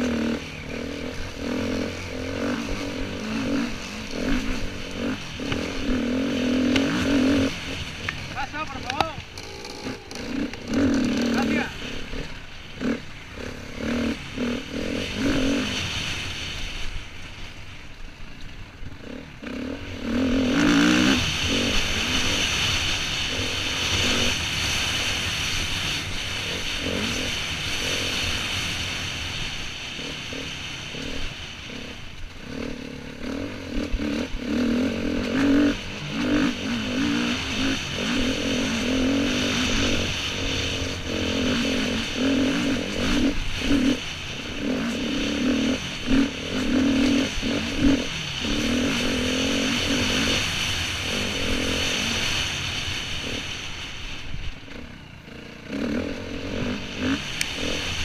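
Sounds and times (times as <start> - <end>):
dirt bike engine revving: 0.0 - 17.6, 18.2 - 58.0.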